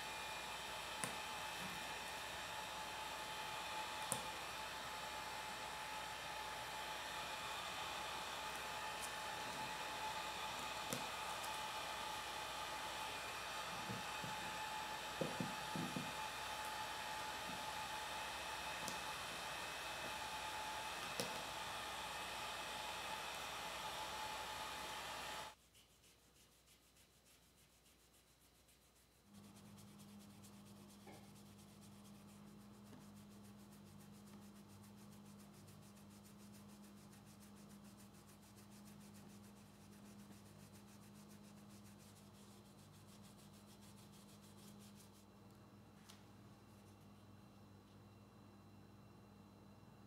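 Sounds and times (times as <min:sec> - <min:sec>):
heat gun blowing hiss: 0:00.0 - 0:25.6.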